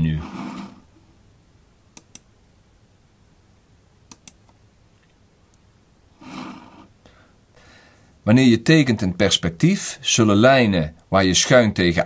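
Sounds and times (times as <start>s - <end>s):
computer mouse clicks: 1.9s - 2.3s, 4.1s - 4.6s.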